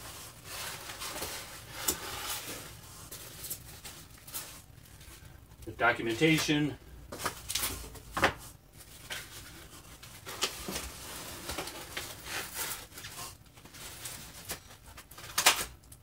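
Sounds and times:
packing wrap rustling and crinkling: 0.0 - 16.0.

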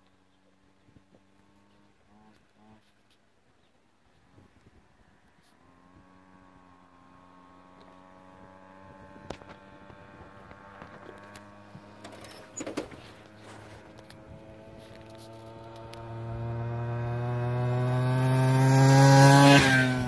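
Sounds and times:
small two-stroke engine running: 5.5 - 20.0.

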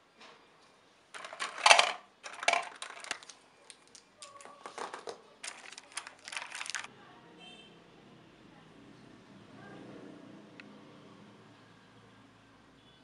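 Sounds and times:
pens rustling and clacking: 1.2 - 6.9.

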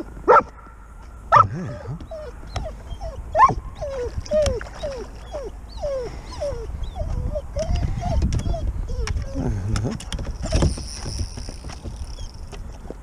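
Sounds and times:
dog yelping: 1.3 - 9.4
dog whimpering: 1.4 - 9.6.

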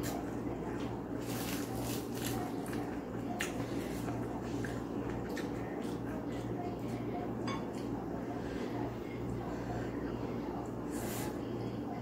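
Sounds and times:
person chewing food: 0.0 - 7.0.

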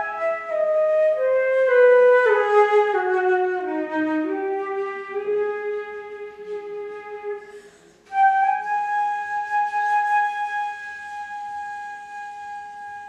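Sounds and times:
flute playing: 0.0 - 13.0
breath: 7.4 - 8.1.

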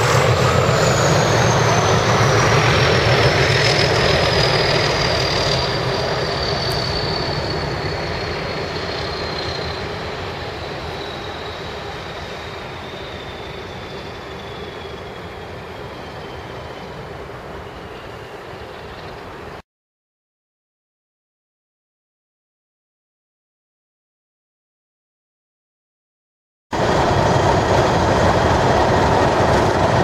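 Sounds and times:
diesel locomotive engines working: 0.0 - 19.6, 26.8 - 30.0.

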